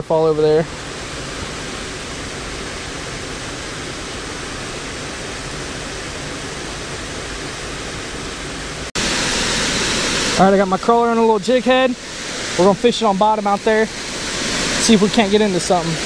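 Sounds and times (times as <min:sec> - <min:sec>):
small waterfall rushing: 0:00.0 - 0:16.0.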